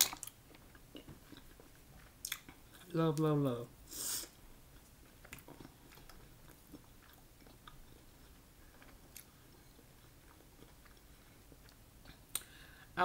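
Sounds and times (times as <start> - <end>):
faint chewing: 0.0 - 3.3, 4.7 - 12.6
soft mouth clicks: 12.1 - 12.6.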